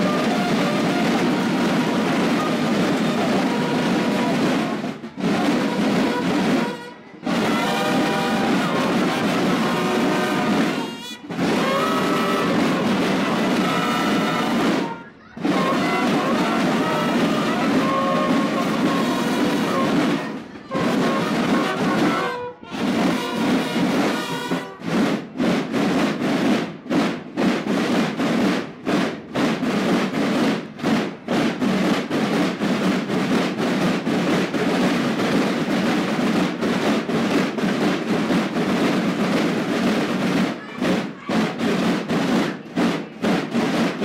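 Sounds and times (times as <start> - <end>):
bugles holding notes: 0.0 - 25.0
snare drums beating: 0.0 - 44.0.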